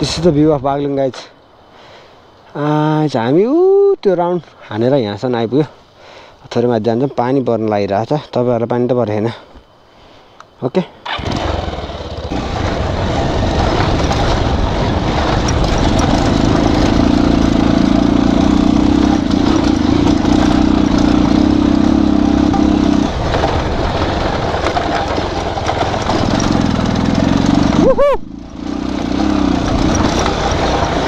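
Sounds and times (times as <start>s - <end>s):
motorcycle engine running: 11.1s - 31.0s.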